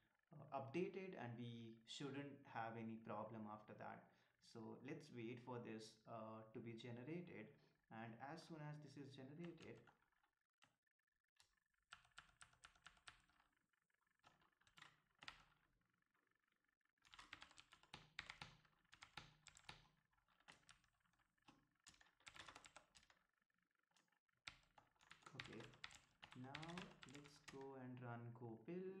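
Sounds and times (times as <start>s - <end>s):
faint keyboard typing: 9.3s - 10.0s, 11.4s - 15.7s, 17.0s - 23.3s, 23.9s - 28.0s.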